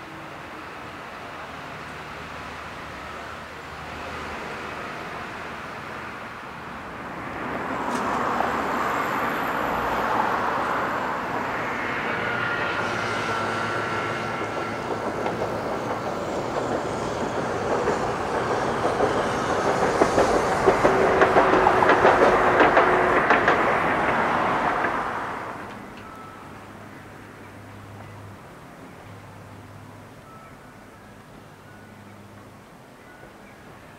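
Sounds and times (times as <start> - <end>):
streetcar wheels clattering over joints: 12.8 - 26.1.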